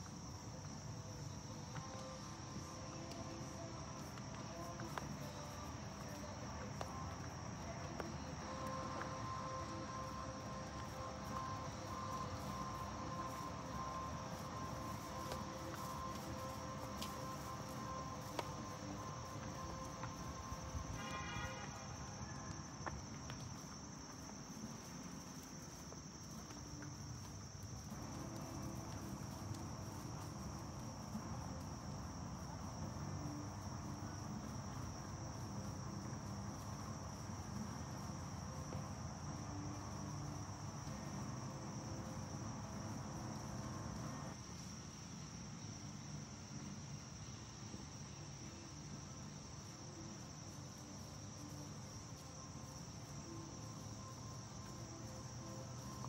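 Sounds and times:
insects chirring: 0:00.0 - 0:56.0.

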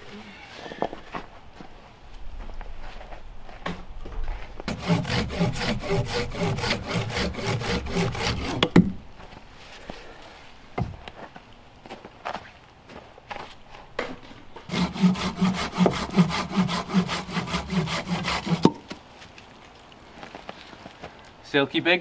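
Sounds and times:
hand saw cutting a branch: 0:04.7 - 0:08.9, 0:14.7 - 0:18.9.

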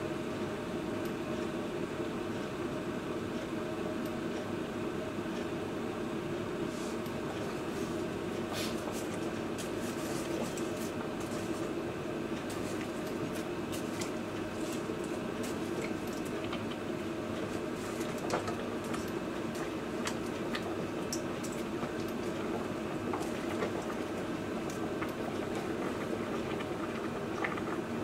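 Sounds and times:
water boiling in a pot: 0:06.0 - 0:28.0.

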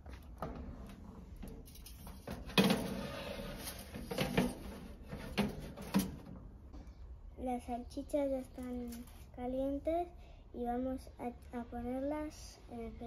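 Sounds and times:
metal tray rattling clatter: 0:01.7 - 0:06.2.

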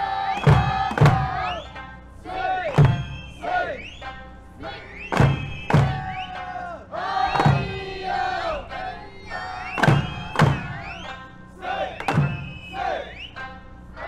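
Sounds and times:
folk singing: 0:00.0 - 0:14.0
drum strikes: 0:00.3 - 0:01.8, 0:02.4 - 0:04.2, 0:05.1 - 0:12.8
plucked lute: 0:00.3 - 0:14.0.

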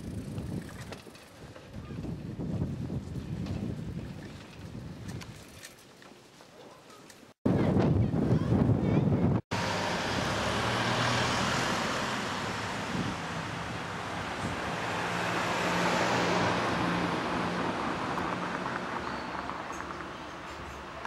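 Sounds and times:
cars passing: 0:09.5 - 0:21.0.

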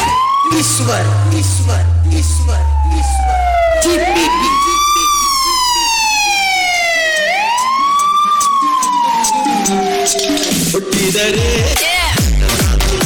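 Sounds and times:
siren sound effect wailing: 0:00.0 - 0:11.0
faint low notes: 0:00.5 - 0:07.0.

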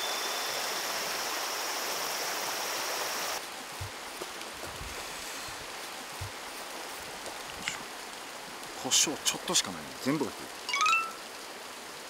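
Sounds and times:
stream rippling over stones: 0:00.0 - 0:12.0
soft low thuds: 0:03.8 - 0:04.9.

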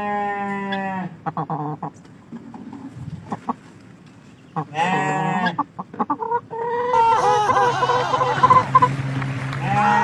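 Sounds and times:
chicken squawking: 0:00.7 - 0:03.6, 0:04.6 - 0:09.0
chicken clucking: 0:01.2 - 0:03.8, 0:04.4 - 0:09.0.

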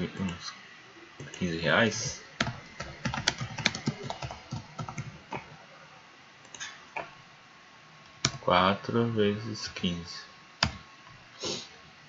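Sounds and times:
typing on a computer keyboard: 0:02.4 - 0:05.1.

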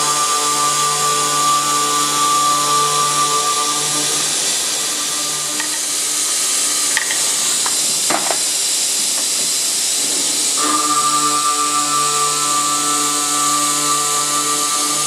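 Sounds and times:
background music with held notes: 0:00.0 - 0:07.6, 0:10.6 - 0:15.0
circular saw cutting steel: 0:00.0 - 0:15.0.

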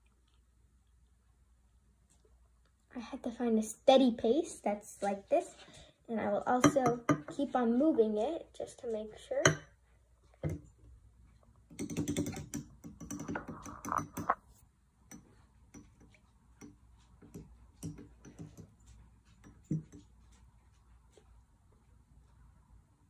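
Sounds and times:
small glass clicks: 0:11.7 - 0:14.4.

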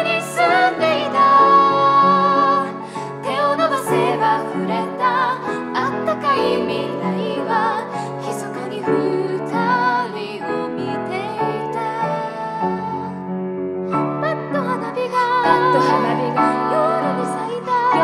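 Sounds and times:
person singing with vibrato: 0:00.0 - 0:13.2, 0:14.2 - 0:18.0
piano accompaniment: 0:00.0 - 0:18.0.

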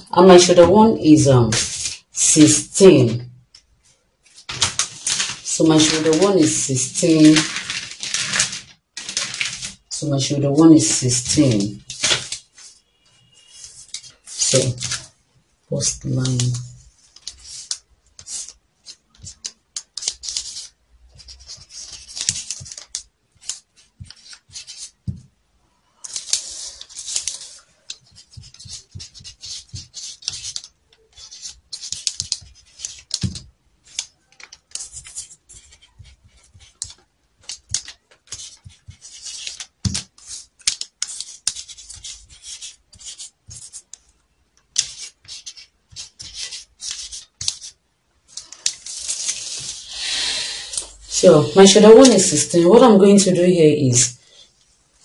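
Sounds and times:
marker scratching on paper: 0:00.2 - 0:03.2, 0:17.1 - 0:25.3, 0:26.0 - 0:44.1, 0:44.7 - 0:47.8, 0:48.4 - 0:52.8.

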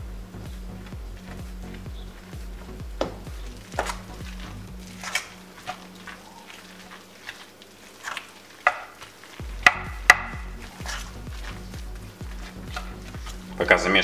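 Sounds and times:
metal spoon stirring thick batter: 0:03.3 - 0:14.0.

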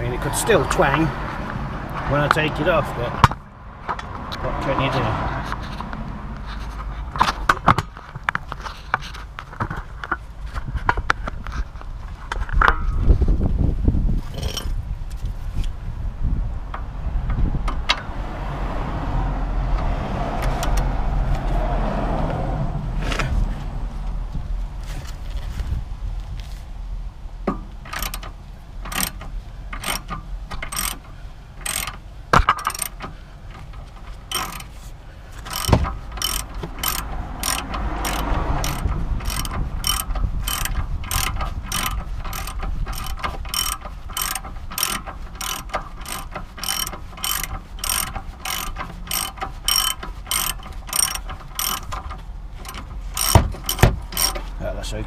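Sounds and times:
socket ratchet clicking: 0:20.4 - 0:20.8, 0:27.8 - 0:33.7, 0:34.3 - 0:34.7, 0:35.4 - 0:54.5.

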